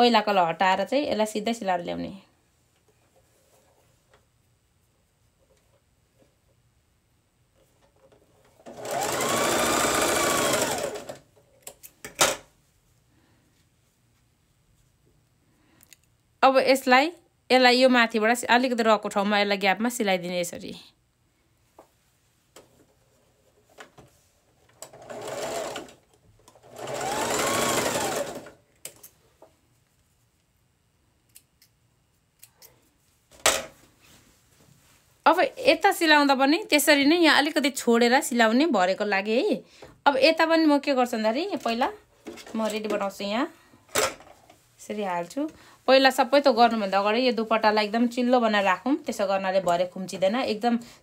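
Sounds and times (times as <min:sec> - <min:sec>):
electric sewing machine stitching: 0:08.6 - 0:11.2, 0:24.8 - 0:28.6.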